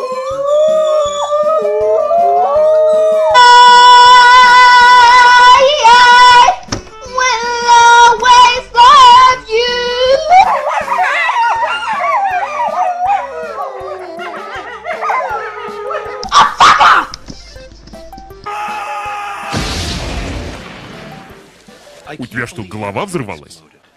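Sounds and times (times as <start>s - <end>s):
wolves howling: 0.0s - 6.6s, 7.2s - 17.6s
girl singing: 4.0s - 10.4s.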